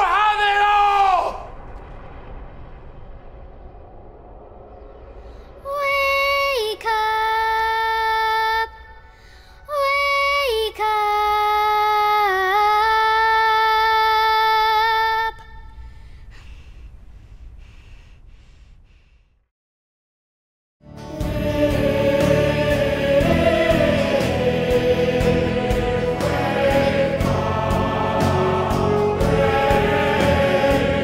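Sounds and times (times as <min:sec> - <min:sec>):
low rumble: 0:01.2 - 0:08.1, 0:15.1 - 0:19.2
girl singing: 0:05.6 - 0:15.8.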